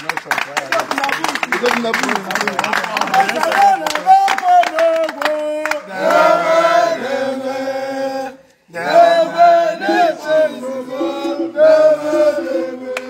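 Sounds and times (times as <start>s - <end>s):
men chanting in unison: 4.7s - 13.0s.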